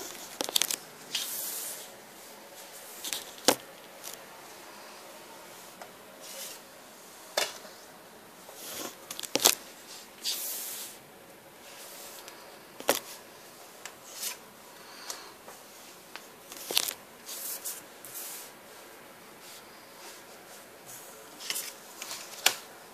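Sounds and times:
cards rubbing and sliding: 0.0 - 1.9, 2.7 - 4.2, 16.5 - 18.6.

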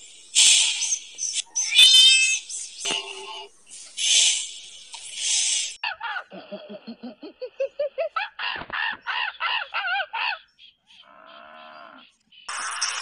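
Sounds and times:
animal hissing: 0.0 - 1.5, 3.7 - 5.8.

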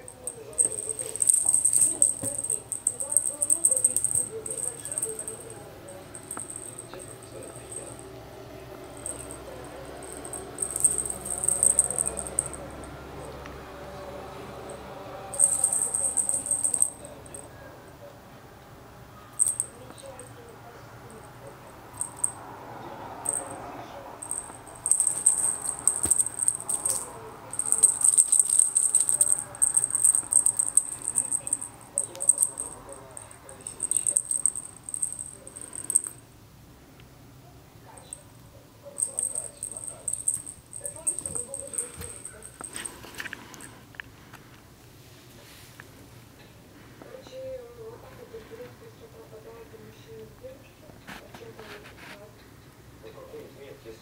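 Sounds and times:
jingle bell jingling: 0.0 - 8.1, 8.8 - 13.4, 14.6 - 17.5, 19.4 - 19.8, 21.8 - 22.4, 23.2 - 36.2, 39.0 - 43.1.

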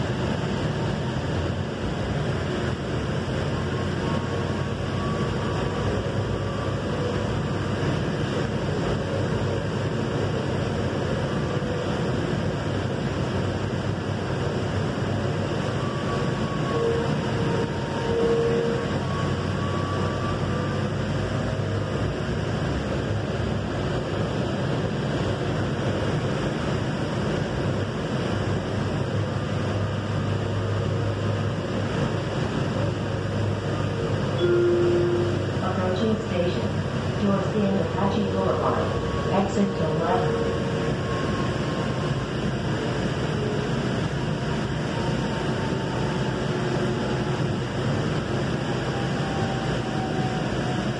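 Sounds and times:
light rail car running: 0.0 - 50.9
low hum: 29.0 - 44.3
faint brief tones: 34.3 - 35.5.

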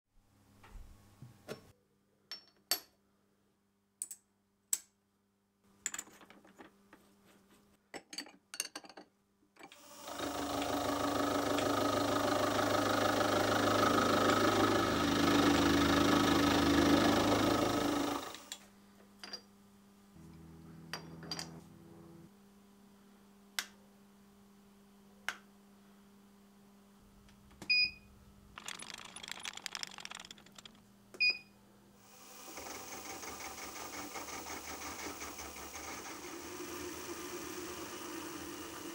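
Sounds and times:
end mill cutting metal: 9.8 - 18.5
low machine hum: 19.7 - 23.3
sharp clicks: 28.6 - 30.8.

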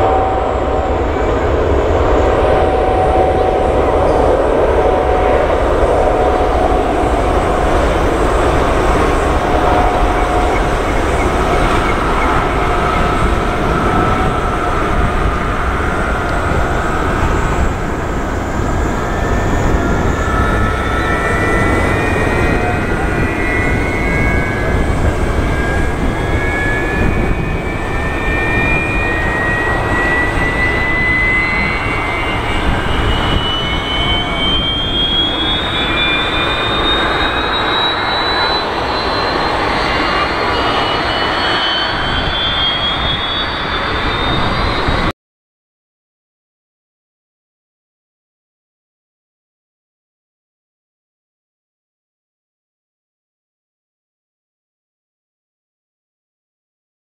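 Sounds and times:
jet engines at take-off power: 0.0 - 45.1.

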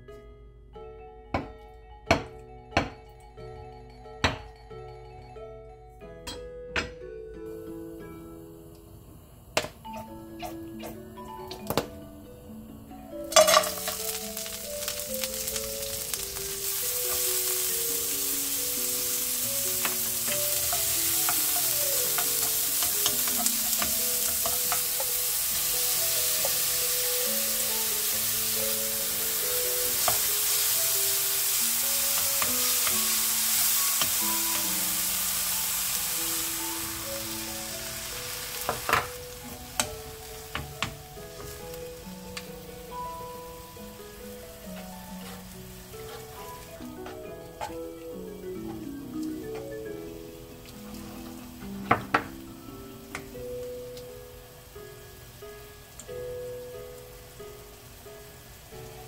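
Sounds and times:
food sizzling in hot oil: 13.0 - 59.0
wooden spoon stirring: 13.4 - 28.6, 44.7 - 47.9.

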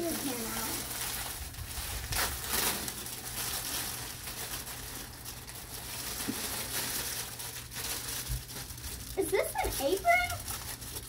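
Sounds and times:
paper bags rustling: 0.0 - 11.0.

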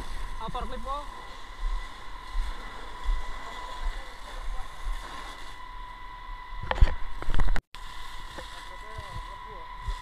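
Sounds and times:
fire hose spraying water: 0.0 - 5.6, 7.8 - 10.0
steady high-pitched tone: 0.0 - 10.0.

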